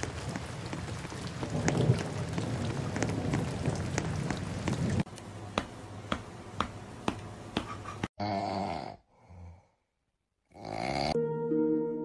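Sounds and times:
rain falling: 0:00.0 - 0:07.5.

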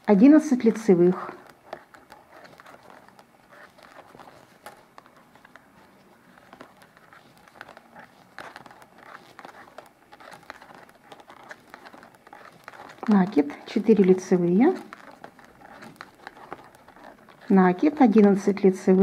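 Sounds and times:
knitting needles clicking: 0:00.0 - 0:19.0.

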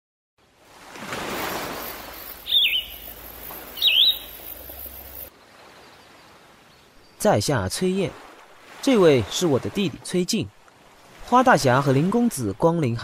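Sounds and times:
outdoor nature ambience: 0:00.4 - 0:13.0
bird calls falling whistle: 0:01.6 - 0:05.3.

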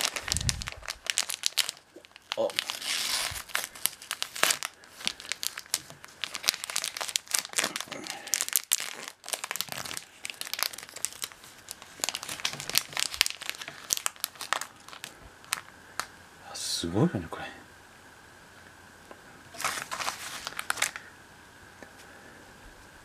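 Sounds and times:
plastic wrapper crinkling: 0:00.0 - 0:16.1, 0:19.5 - 0:21.1.

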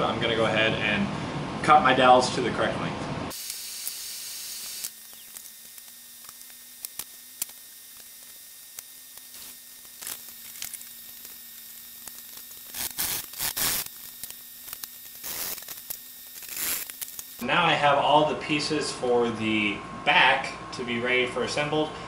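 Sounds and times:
handsaw cutting wood: 0:12.5 - 0:14.0, 0:15.2 - 0:15.6.

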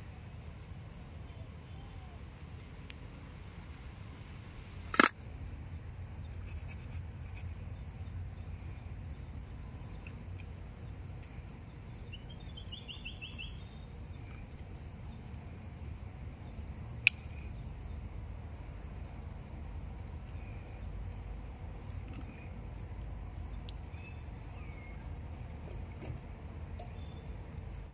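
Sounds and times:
sharp click: 0:04.9 - 0:05.2.

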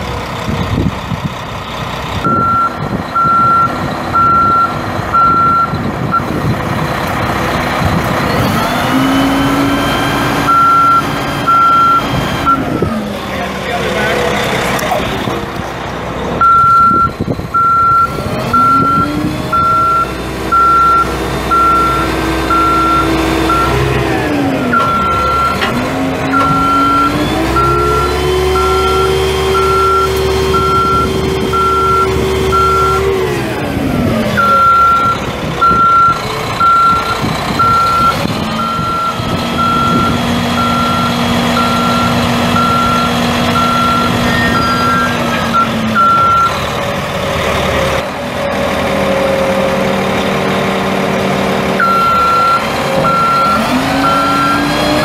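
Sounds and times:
diesel engine revving: 0:00.0 - 0:55.0
backup alarm beeping: 0:02.2 - 0:06.4, 0:09.4 - 0:12.7, 0:16.4 - 0:23.9, 0:24.6 - 0:25.6, 0:26.3 - 0:33.1, 0:34.4 - 0:46.6, 0:51.8 - 0:54.7.

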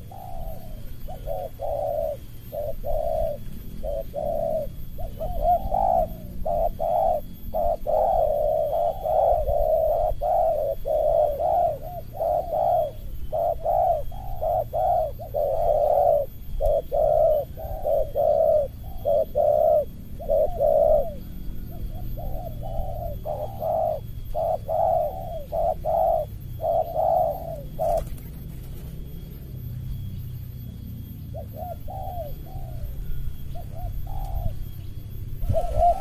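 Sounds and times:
doves cooing: 0:00.0 - 0:36.0
wings fluttering: 0:27.6 - 0:29.4.

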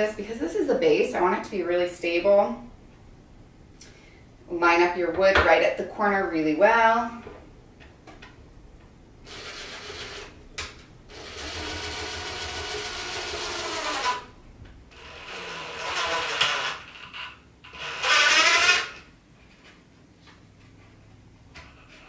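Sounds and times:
cordless drill driving screws: 0:11.1 - 0:14.3, 0:14.9 - 0:19.1.

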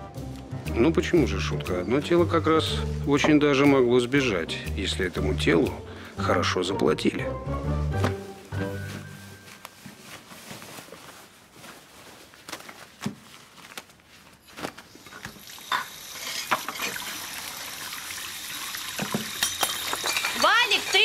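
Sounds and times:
dishes knocking while washed: 0:15.7 - 0:17.1, 0:19.0 - 0:21.0
tap running into sink: 0:18.6 - 0:20.0.

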